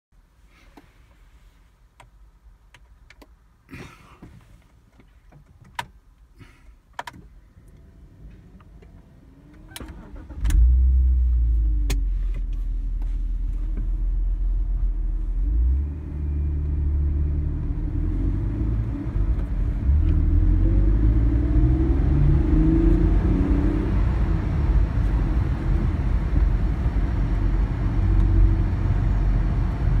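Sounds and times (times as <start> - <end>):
car engine starting and idling: 4.0 - 30.0.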